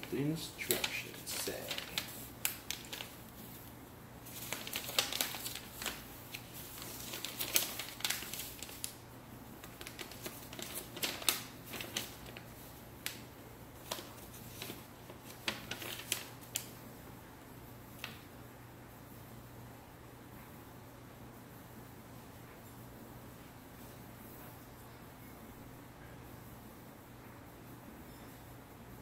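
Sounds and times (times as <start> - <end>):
paper pages turning: 0.1 - 9.0, 9.6 - 16.8.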